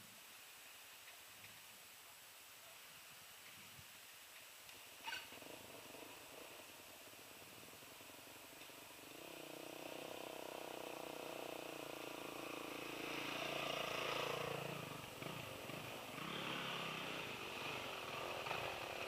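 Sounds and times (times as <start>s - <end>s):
dirt bike engines revving: 5.2s - 19.0s.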